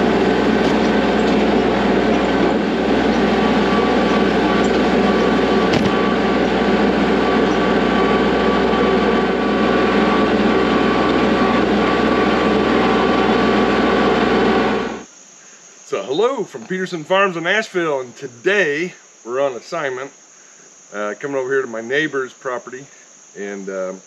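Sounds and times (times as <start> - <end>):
tractor diesel engine running: 0.0 - 15.0
short knock: 5.7 - 6.0.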